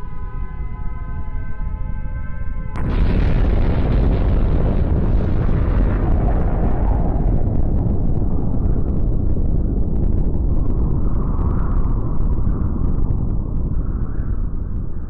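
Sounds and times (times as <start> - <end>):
deep rumble: 0.0 - 15.0.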